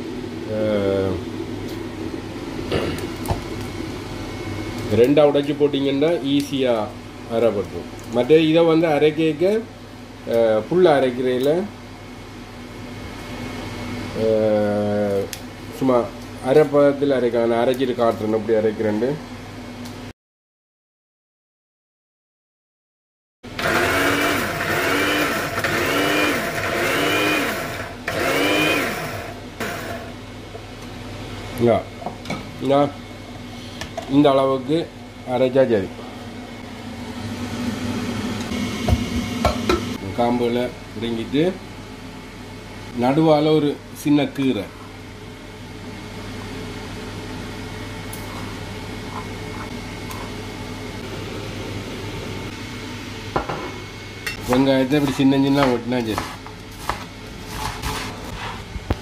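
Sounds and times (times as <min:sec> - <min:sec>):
kitchen machine humming and whirring: 0:00.0 - 0:20.1, 0:23.5 - 0:59.0
spice grinder motor whining: 0:23.5 - 0:30.2.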